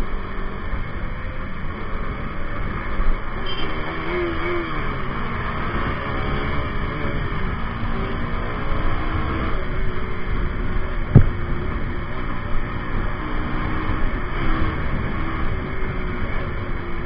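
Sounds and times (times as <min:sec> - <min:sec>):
motorcycle engine revving: 0:01.4 - 0:17.0
sharp thump: 0:11.1 - 0:11.5
wind rushing: 0:11.1 - 0:11.8.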